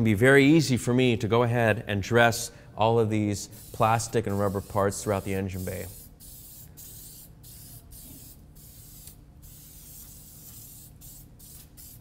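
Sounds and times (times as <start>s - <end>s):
aerosol spray hissing: 3.6s - 12.0s.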